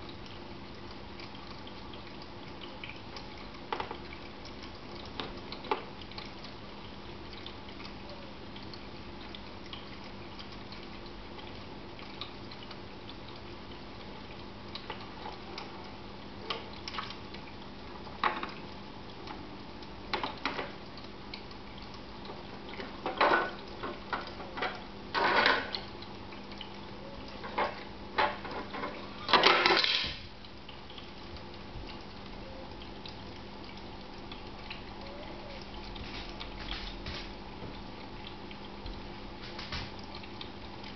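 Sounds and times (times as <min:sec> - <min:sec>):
pet fountain humming: 0:00.0 - 0:40.9
water trickling: 0:00.0 - 0:40.9
taps and splashes: 0:00.8 - 0:06.6, 0:14.4 - 0:32.3, 0:33.0 - 0:40.9.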